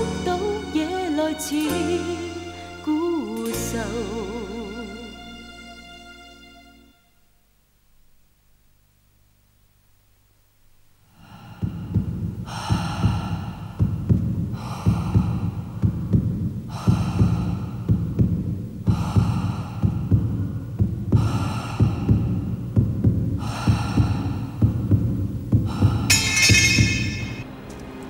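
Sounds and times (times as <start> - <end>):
low throbbing heartbeat-like pulse: 11.2 - 27.4
bright ringing tone: 26.1 - 27.4.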